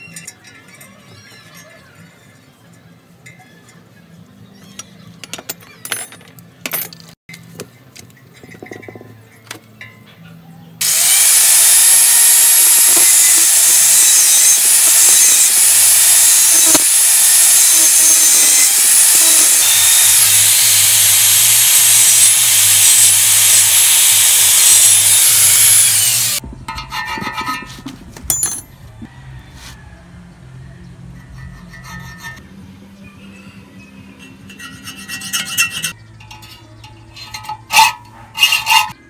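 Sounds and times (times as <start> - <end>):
angle grinder cutting steel: 10.8 - 27.8, 31.2 - 32.4, 34.2 - 39.0
metal scraping strokes: 10.8 - 28.7, 31.2 - 32.5, 34.1 - 39.0.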